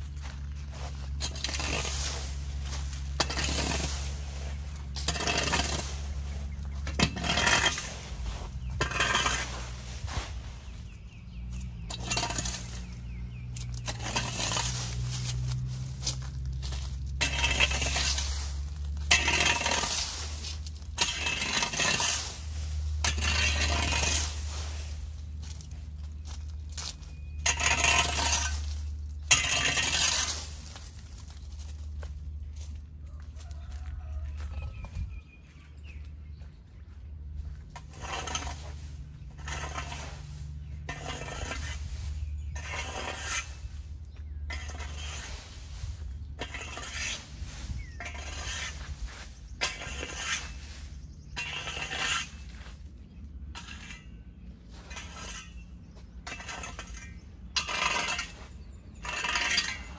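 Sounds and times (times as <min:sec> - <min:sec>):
rake dragging leaves on concrete: 0:00.0 - 0:36.5, 0:37.3 - 0:59.9
seed pods rattling on pavement: 0:00.0 - 0:39.7.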